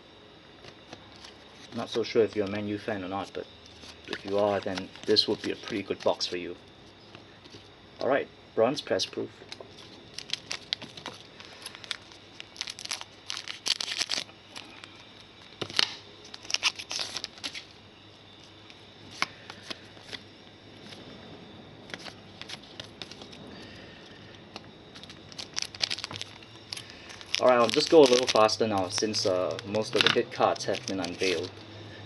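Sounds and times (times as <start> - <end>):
foil wrapper crinkling: 0.6 - 6.4, 9.5 - 17.8, 21.9 - 31.6
cards clicking and sliding: 3.7 - 6.3.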